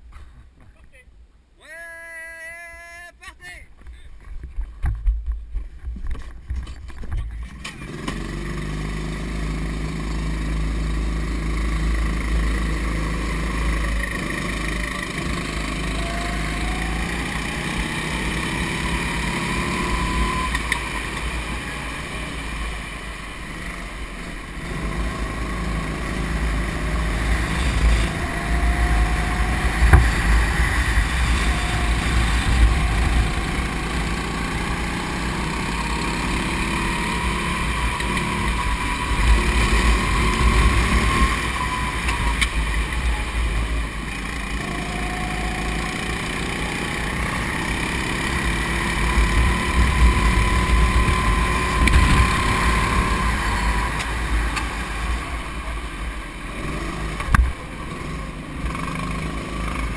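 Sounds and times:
go-kart engine running hard: 7.4s - 59.9s
wind buffeting microphone: 27.1s - 35.2s, 49.2s - 54.3s.

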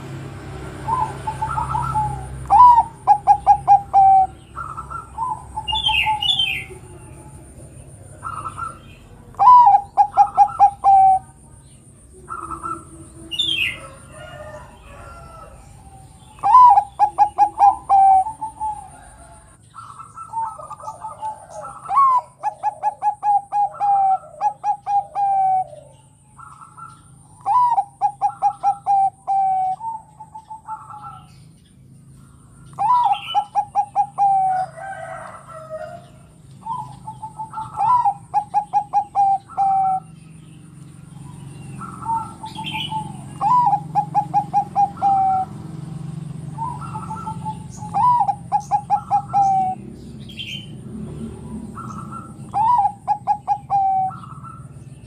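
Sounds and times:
dove cooing: 0.0s - 55.0s
high bird chirps: 0.8s - 7.2s.

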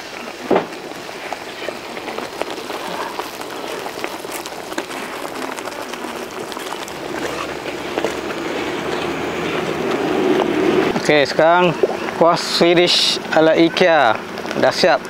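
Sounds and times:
gravy bubbling in a wok: 0.0s - 13.2s.

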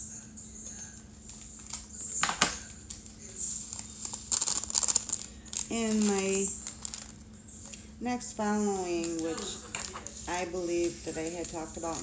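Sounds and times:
foil packet crinkling: 2.6s - 7.9s, 8.8s - 12.0s.

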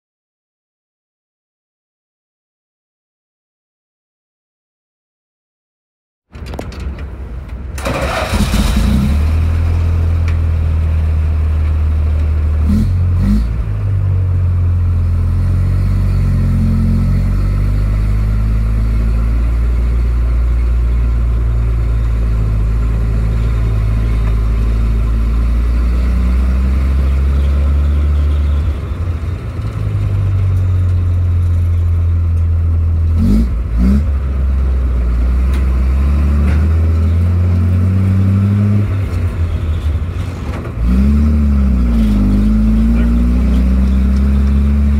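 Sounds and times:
gear change clunk: 6.3s - 9.0s
engine running under load: 6.4s - 44.9s.

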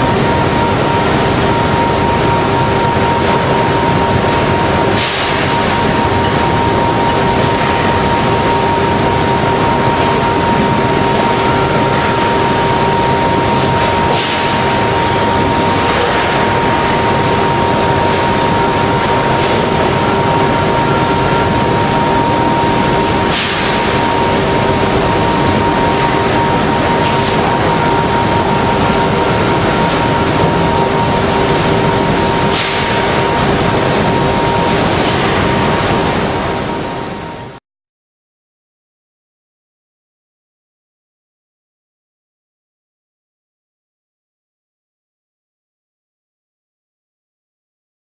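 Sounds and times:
molten metal reaction roar: 0.0s - 37.6s
sharp burst of noise: 0.0s - 37.6s
steady whine: 0.0s - 37.6s.

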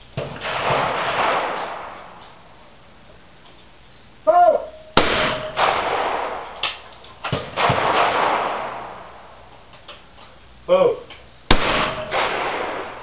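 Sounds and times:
shotgun shots echoing: 0.2s - 2.5s, 5.0s - 9.5s, 11.5s - 13.0s
person shouting: 4.3s - 4.8s.

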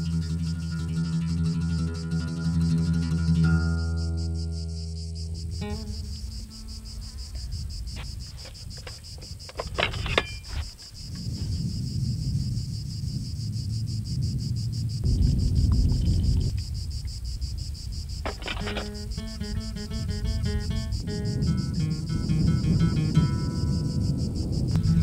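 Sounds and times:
high pulsing insect-like chirring: 0.0s - 25.0s
low rumbling noise: 11.0s - 25.0s.

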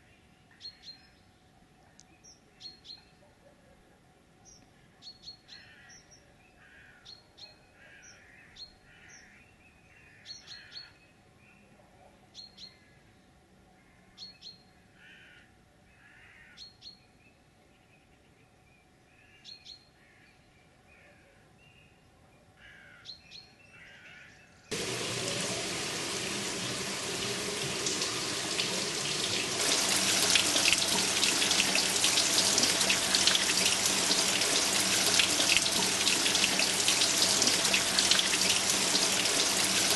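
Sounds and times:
water pouring into a pool: 24.7s - 39.9s.

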